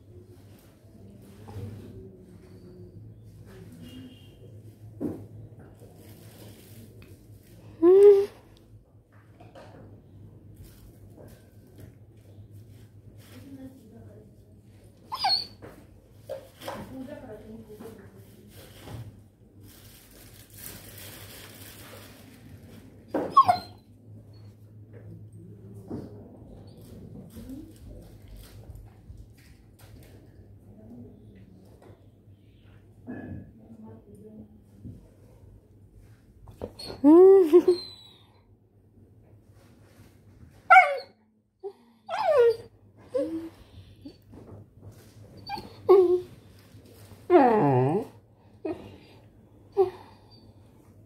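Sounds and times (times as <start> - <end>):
dog whimpering: 15.1 - 15.6, 23.2 - 23.8, 36.7 - 38.2, 42.1 - 44.2, 45.4 - 46.3.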